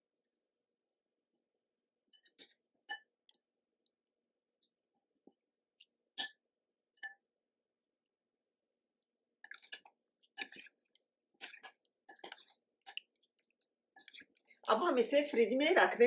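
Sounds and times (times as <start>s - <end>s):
wet squelching of marinade: 9.4s - 15.6s.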